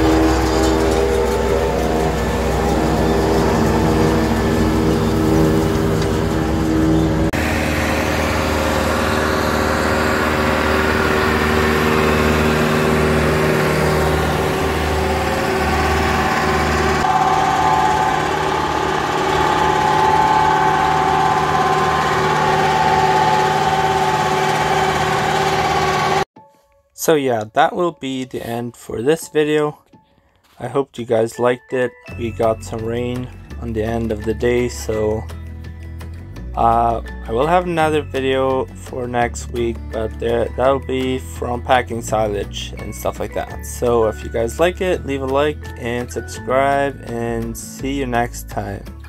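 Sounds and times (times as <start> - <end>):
forage harvester chopping and blowing: 0.0 - 26.2
tractor engines under load: 0.0 - 26.3.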